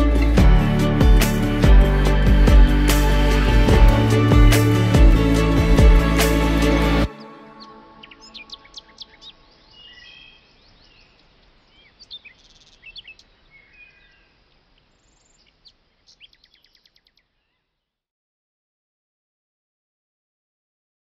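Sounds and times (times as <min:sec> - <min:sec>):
music: 0:00.0 - 0:09.0
small birds chirping: 0:07.1 - 0:17.9.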